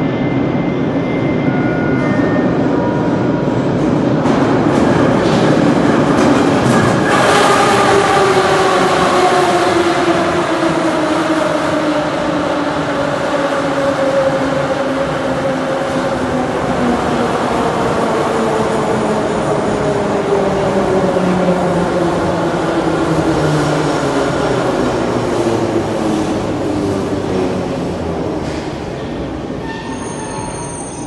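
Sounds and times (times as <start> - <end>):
train wheels rumbling on rails: 0.0 - 31.0.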